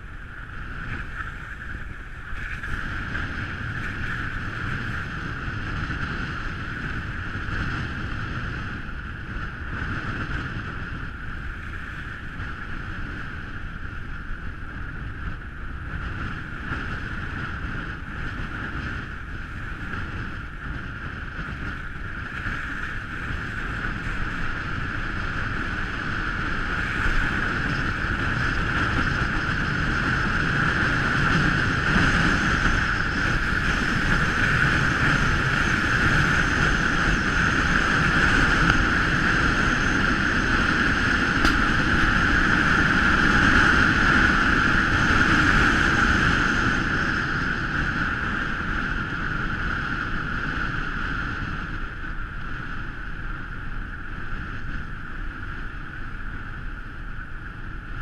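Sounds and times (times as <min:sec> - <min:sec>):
car road noise on snow: 0:00.0 - 0:58.0
wind rushing: 0:17.2 - 0:51.8.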